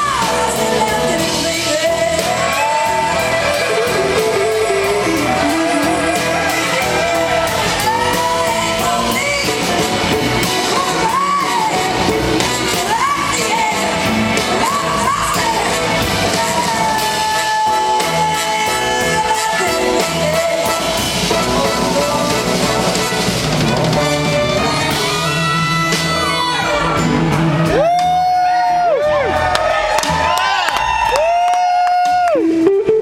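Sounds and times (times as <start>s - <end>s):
woman singing lead vocal: 0.0s - 23.1s, 24.8s - 27.1s
drums: 0.0s - 33.0s
electric guitars: 0.0s - 33.0s.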